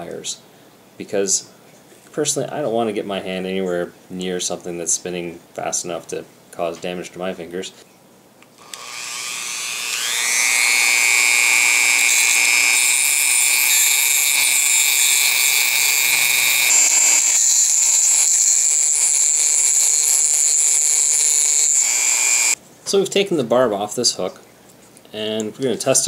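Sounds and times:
rotary tool grinding metal: 0:08.6 - 0:22.6.

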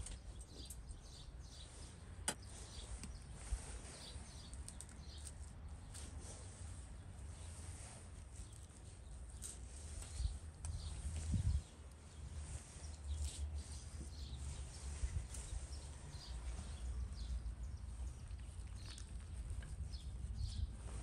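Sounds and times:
low outdoor rumble: 0:00.0 - 0:21.0
small birds chirping: 0:00.0 - 0:21.0.

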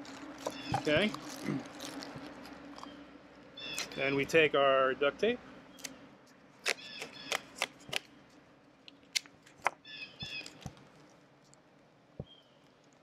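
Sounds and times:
duct tape ripping: 0:00.0 - 0:02.9, 0:03.6 - 0:04.2, 0:05.7 - 0:06.0, 0:06.6 - 0:08.1.

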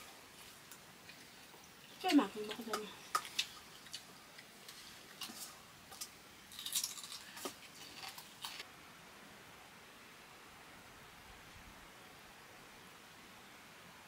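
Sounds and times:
faint hiss: 0:00.0 - 0:14.0
small objects clicking and scraping: 0:02.0 - 0:08.6.

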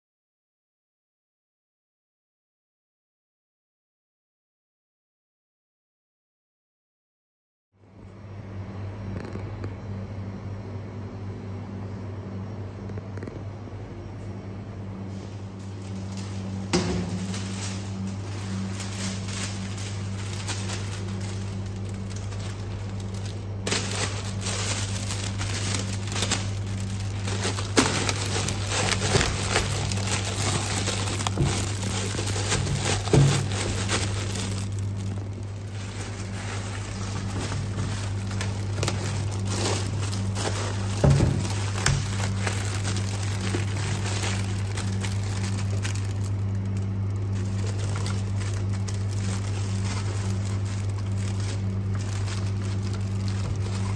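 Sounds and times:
steady low hum: 0:07.8 - 0:53.9
cellophane crinkling: 0:15.1 - 0:53.9.

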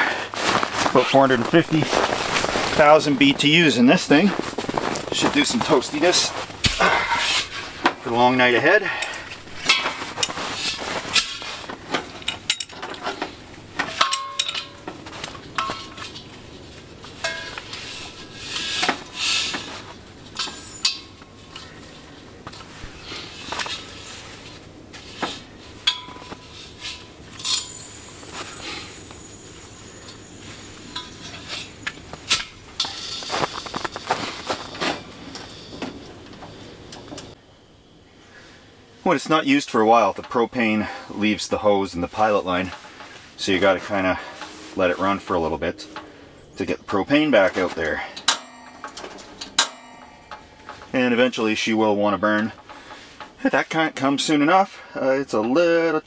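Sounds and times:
rustling: 0:00.0 - 0:37.4, 0:41.9 - 0:51.6
gas cylinder fittings clicking: 0:48.2 - 0:50.9.

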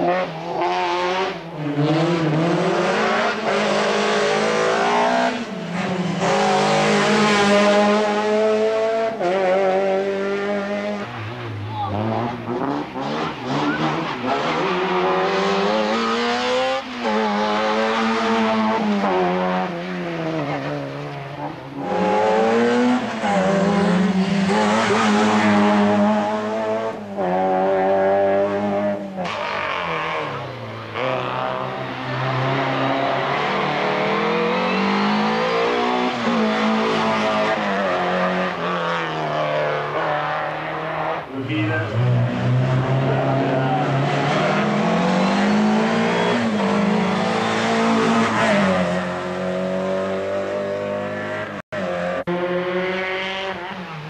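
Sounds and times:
racing car engines revving: 0:00.0 - 0:54.0.

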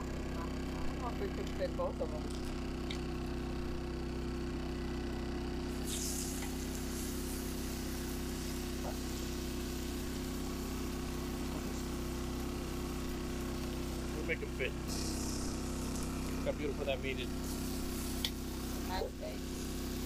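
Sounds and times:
low mechanical hum: 0:00.0 - 0:20.0
steak sizzling in a pan: 0:05.7 - 0:14.1, 0:17.3 - 0:20.0.

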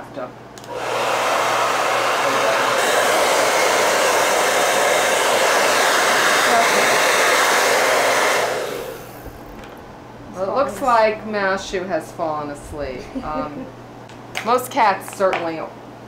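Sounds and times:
hair dryer blowing: 0:00.6 - 0:11.2.

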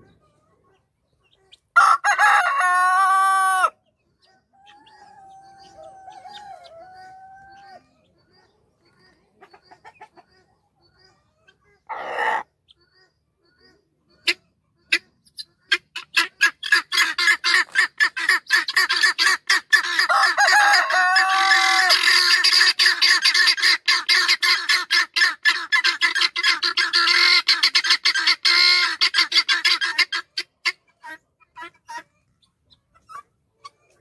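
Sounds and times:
guinea fowl cackling: 0:00.0 - 0:34.0
rooster crowing: 0:01.8 - 0:03.7, 0:04.6 - 0:07.6, 0:20.1 - 0:22.0.

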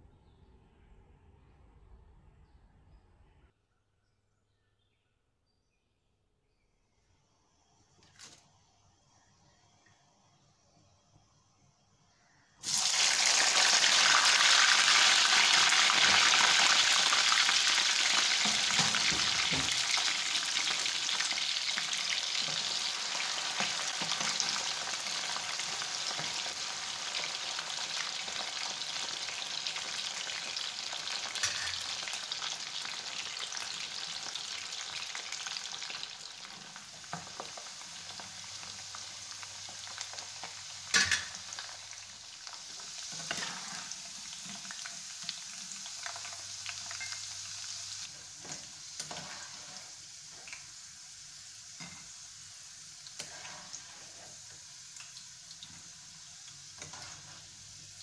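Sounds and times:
fries sizzling in hot oil: 0:12.6 - 0:58.0.

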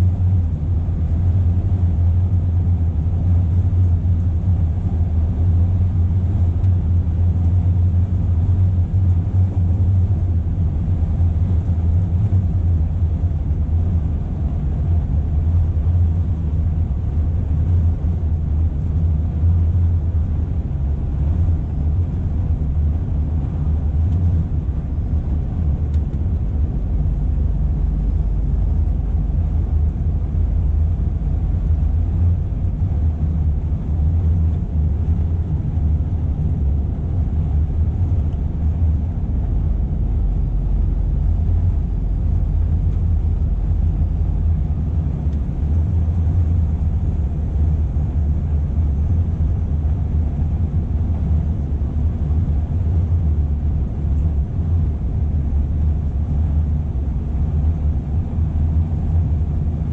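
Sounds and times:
truck diesel engine drone: 0:00.0 - 0:59.9.

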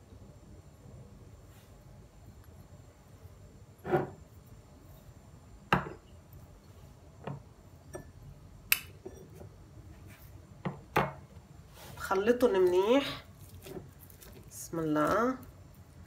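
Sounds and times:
metal spoon clinking on glass bowls: 0:07.9 - 0:08.2.

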